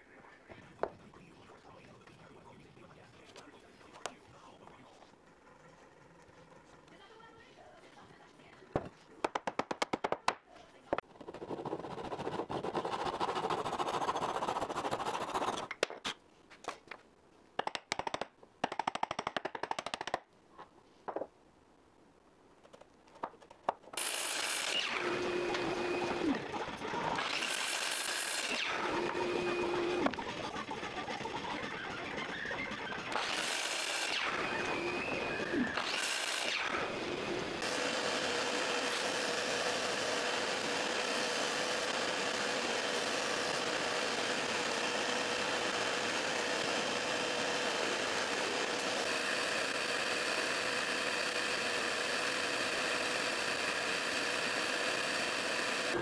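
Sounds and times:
sharp taps: 0:08.8 - 0:10.4, 0:17.6 - 0:20.2
hand saw rasping through wood: 0:11.3 - 0:15.7
miter saw cutting: 0:11.3 - 0:15.7, 0:24.0 - 0:56.0
mortiser humming: 0:24.0 - 0:56.0.

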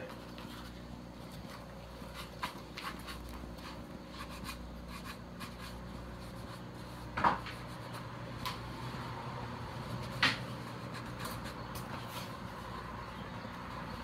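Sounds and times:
steady low hum: 0:00.0 - 0:14.0
plastic helmet rubbing and tapping: 0:00.2 - 0:08.6.

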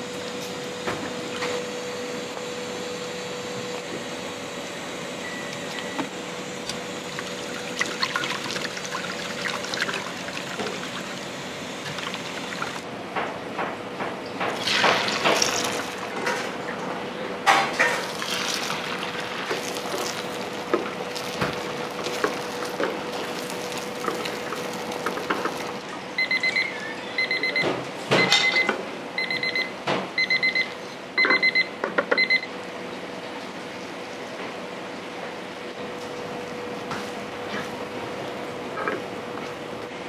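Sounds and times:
electronic alarm beeping: 0:26.2 - 0:32.5.

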